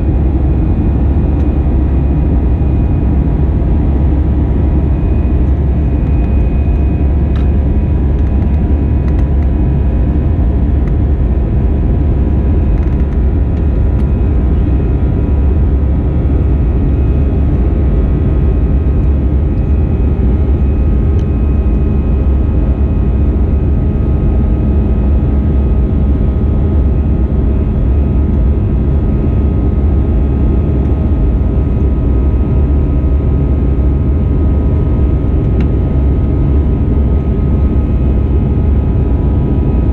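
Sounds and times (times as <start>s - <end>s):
airplane cabin engine drone: 0.0s - 39.9s
faint steady whine: 0.0s - 39.9s.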